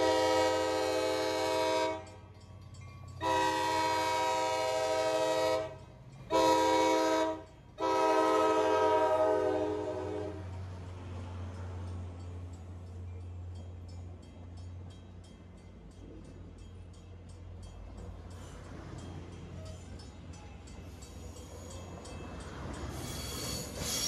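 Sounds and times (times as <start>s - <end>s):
train air horn blasts: 0.0s - 2.2s, 3.2s - 10.6s
locomotive engine rumble: 0.0s - 24.0s.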